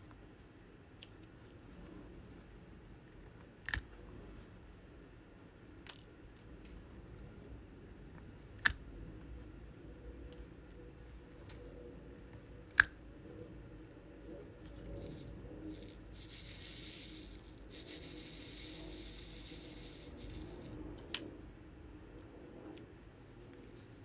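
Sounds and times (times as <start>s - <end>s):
rustling of craft supplies: 14.2s - 20.8s.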